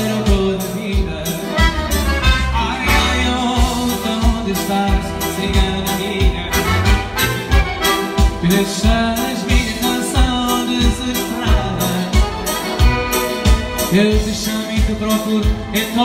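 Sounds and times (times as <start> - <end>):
electronic accordion melody: 0.0 - 16.0
steady dance beat: 1.2 - 15.7.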